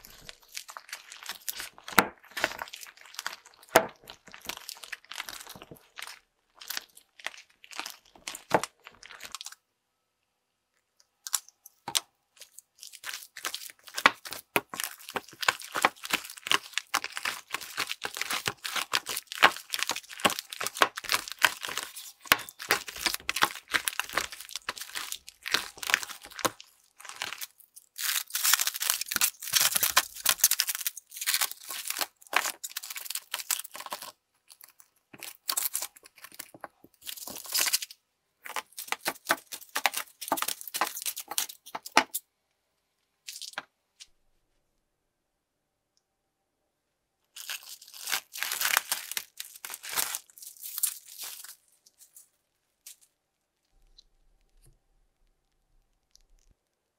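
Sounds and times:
slime crackling and popping: 0:00.0 - 0:09.6, 0:11.3 - 0:42.2, 0:47.4 - 0:51.6.

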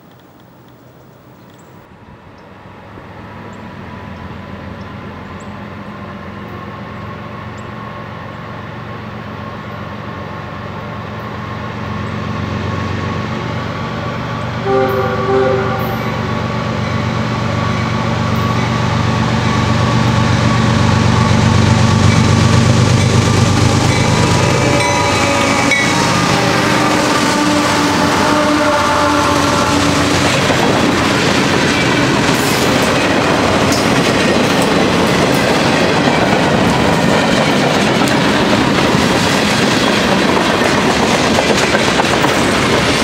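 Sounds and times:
diesel locomotive engine drone: 0:00.0 - 0:43.0
train horn blasts: 0:14.6 - 0:17.2, 0:24.5 - 0:30.4.

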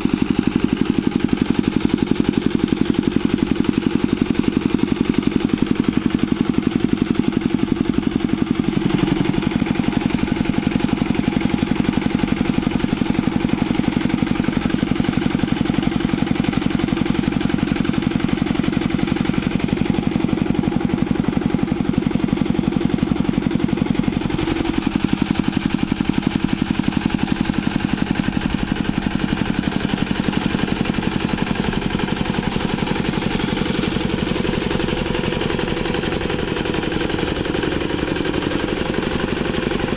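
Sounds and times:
diesel engine running under load: 0:00.0 - 0:39.9
rotary tiller working wet mud: 0:00.0 - 0:39.9.

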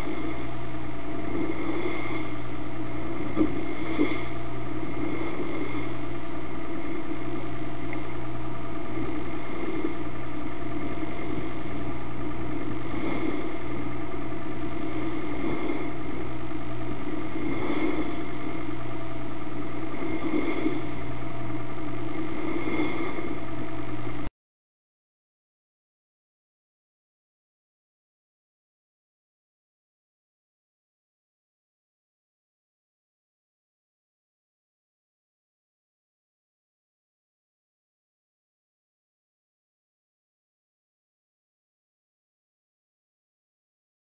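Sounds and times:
boat engine droning: 0:00.0 - 0:24.3.

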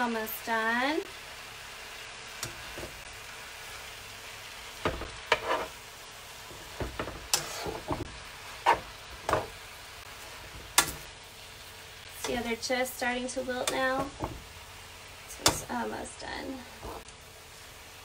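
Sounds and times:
spinach sizzling in frying pan: 0:00.0 - 0:18.0
metal tongs scraping pan: 0:05.0 - 0:05.8, 0:07.0 - 0:09.6, 0:12.2 - 0:12.7, 0:13.6 - 0:14.2.

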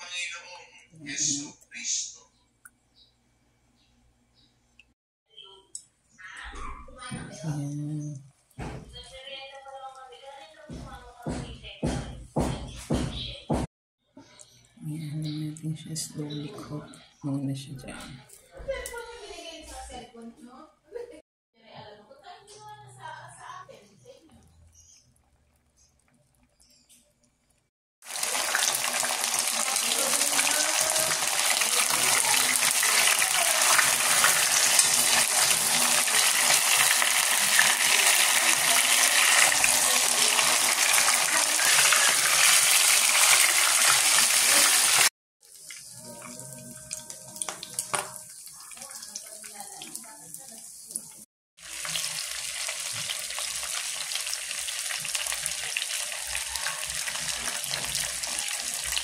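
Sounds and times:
fish sizzling in hot oil: 0:28.0 - 0:59.0.

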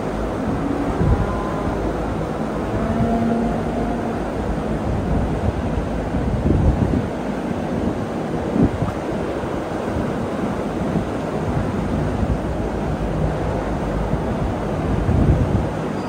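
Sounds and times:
moving vehicle rumble: 0:00.0 - 0:09.4.

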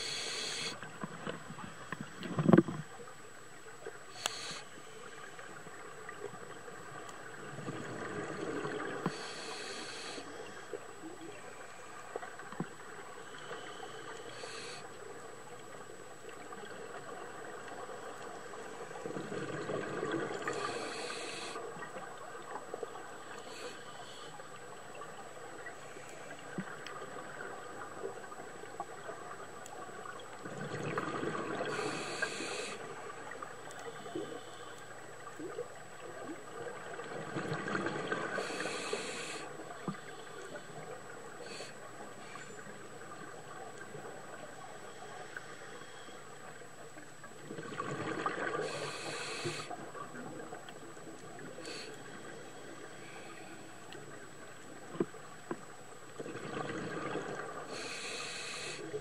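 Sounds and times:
regulator inhale hiss: 0:00.0 - 0:00.8, 0:04.1 - 0:05.3, 0:09.0 - 0:10.7, 0:13.2 - 0:15.1, 0:20.5 - 0:21.8, 0:23.3 - 0:24.6, 0:31.6 - 0:33.0, 0:38.2 - 0:40.8, 0:41.4 - 0:42.6, 0:48.5 - 0:49.8, 0:51.6 - 0:53.9, 0:57.7 - 0:59.0
gurgling exhaled bubbles: 0:30.4 - 0:32.4, 0:47.4 - 0:50.5, 0:56.2 - 0:57.8.

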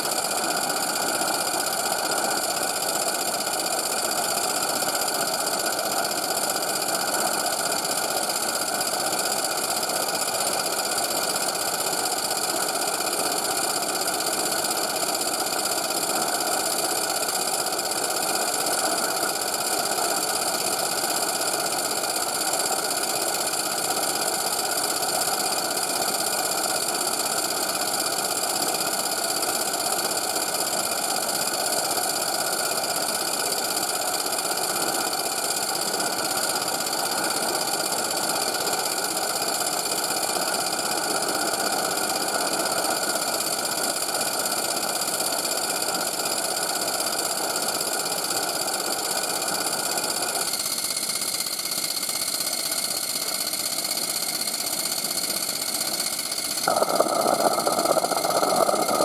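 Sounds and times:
gas burner roar: 0:56.5 - 0:59.0.

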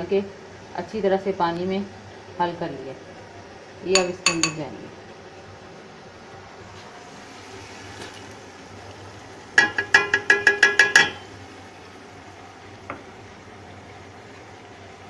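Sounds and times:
spoon clinking on metal pot: 0:04.0 - 0:04.7, 0:09.6 - 0:11.3.

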